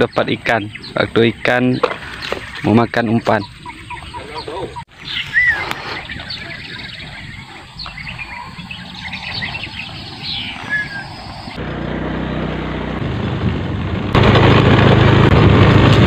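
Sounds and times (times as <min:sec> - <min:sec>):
bird chirps: 0:00.0 - 0:11.6.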